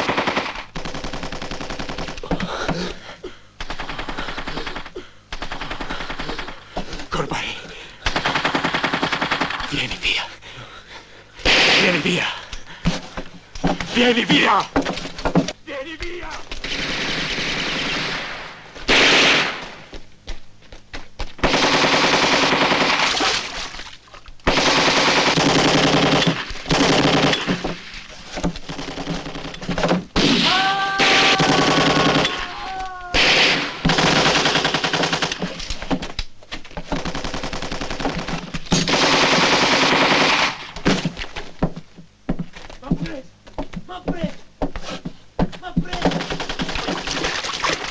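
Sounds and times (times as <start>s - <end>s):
automatic gunfire bursts: 0.0s - 2.2s, 8.1s - 9.8s, 16.6s - 19.8s, 21.4s - 23.4s, 24.5s - 27.6s, 31.2s - 32.4s, 33.2s - 35.4s, 37.0s - 40.7s, 46.1s - 47.5s.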